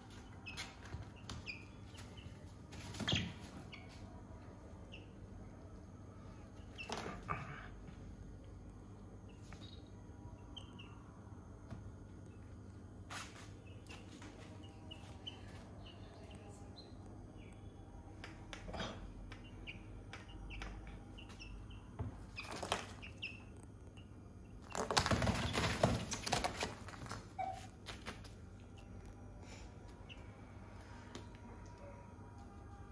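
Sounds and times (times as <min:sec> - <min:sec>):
chicks peeping: 0:00.0 - 0:04.1, 0:13.6 - 0:17.6, 0:19.3 - 0:27.3
wings flapping: 0:24.6 - 0:27.3.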